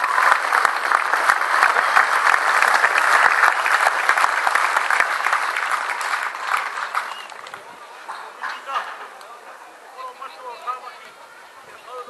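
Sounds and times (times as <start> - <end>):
crowd applauding: 0.0 - 9.2.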